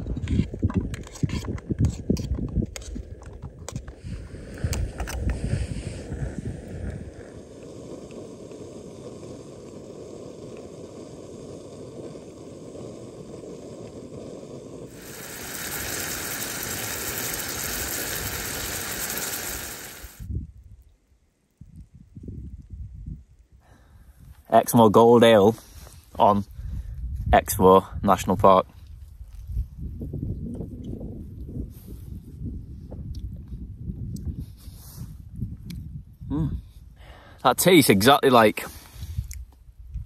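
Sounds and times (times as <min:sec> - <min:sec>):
wind rumble on microphone: 0:00.0 - 0:14.8, 0:15.8 - 0:24.5, 0:25.6 - 0:37.2, 0:38.9 - 0:40.0
loud steady hiss: 0:05.4 - 0:20.3.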